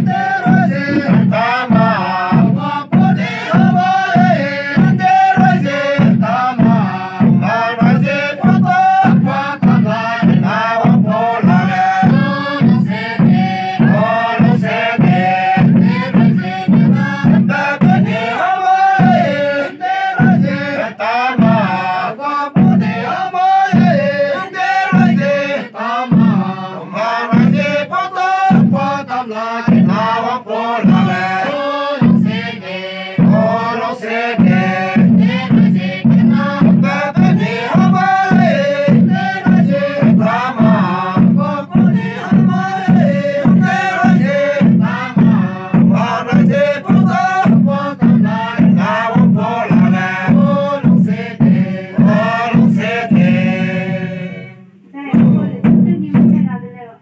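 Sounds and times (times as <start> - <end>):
voices singing a chanted hymn: 0.0 - 55.7
steady low beat: 0.0 - 56.7.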